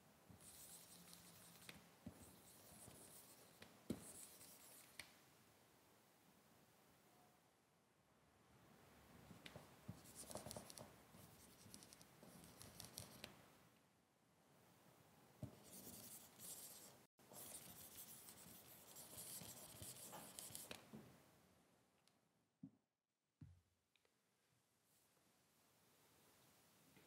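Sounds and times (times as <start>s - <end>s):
scratchy drawing strokes: 0.4s - 5.0s, 15.4s - 20.8s.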